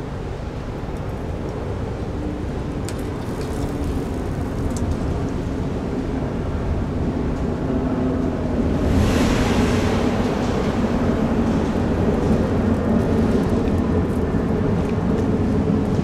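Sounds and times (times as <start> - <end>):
hiss: 8.8 - 11.4.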